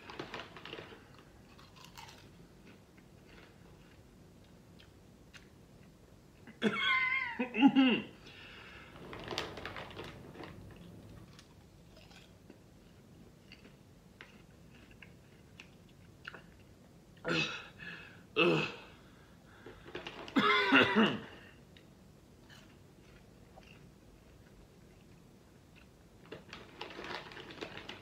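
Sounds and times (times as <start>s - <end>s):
popcorn crunching chews: 0.0s - 6.0s, 9.1s - 16.8s, 21.7s - 28.0s.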